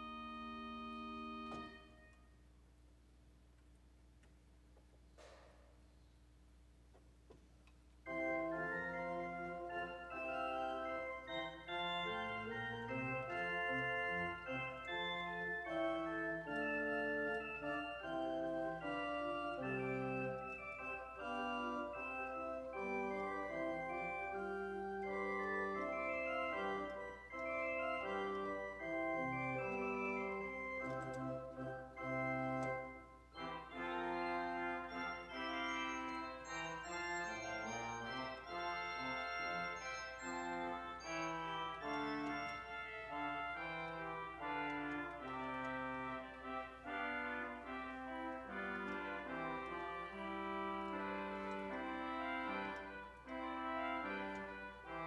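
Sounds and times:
church organ playing chords: 0:00.0 - 0:02.5, 0:08.0 - 0:55.0.

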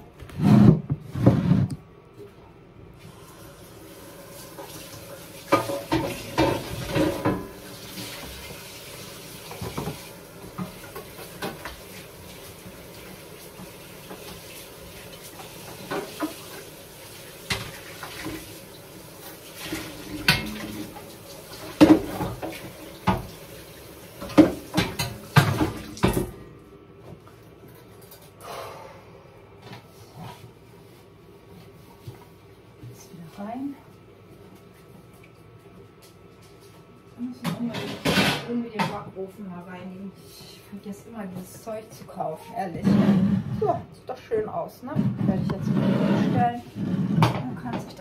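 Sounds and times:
metal tray clattering against sink: 0:05.5 - 0:07.6
tap running into sink: 0:09.4 - 0:12.0, 0:19.6 - 0:23.4, 0:24.2 - 0:26.4.

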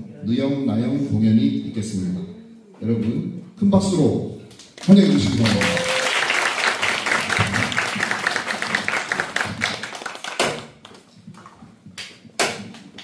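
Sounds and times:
audience applause: 0:04.8 - 0:10.9.

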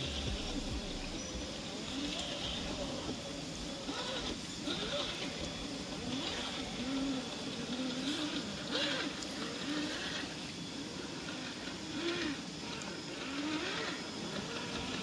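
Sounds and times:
electric motor whining: 0:00.0 - 0:15.0.

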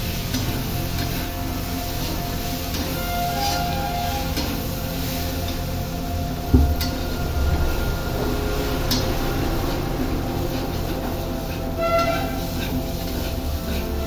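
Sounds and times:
steady low rumble: 0:00.0 - 0:14.0
metal spatula scraping a pan: 0:00.3 - 0:06.0, 0:10.3 - 0:14.0
low thump: 0:06.4 - 0:09.9.

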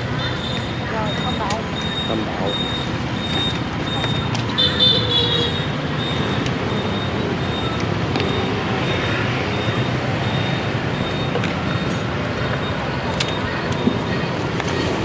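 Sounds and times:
street traffic passing: 0:00.0 - 0:15.0.

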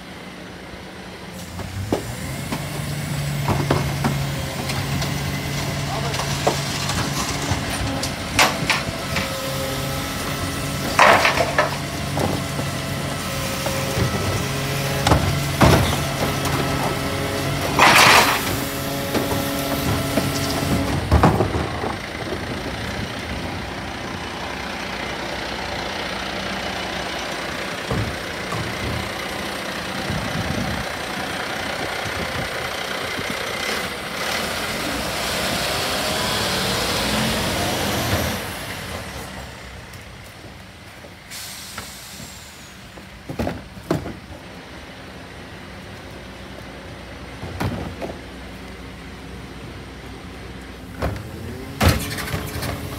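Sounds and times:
garbage truck compactor running: 0:00.0 - 0:52.9
wheelie bins knocking: 0:01.9 - 0:23.0, 0:27.5 - 0:30.8.

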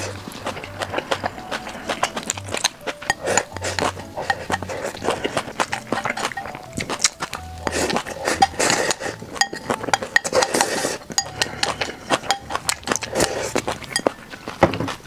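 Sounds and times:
chopsticks scraping glass bowl: 0:00.0 - 0:14.2
chewing and eating: 0:00.0 - 0:15.0.

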